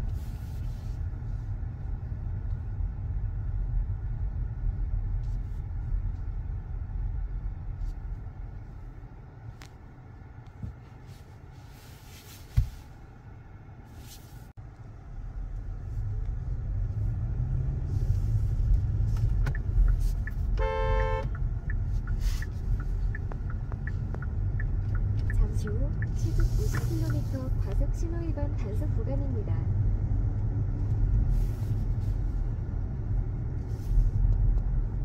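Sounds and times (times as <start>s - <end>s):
low car rumble: 0.0s - 35.0s
thump: 12.5s - 12.8s
short horn beep: 20.6s - 21.3s.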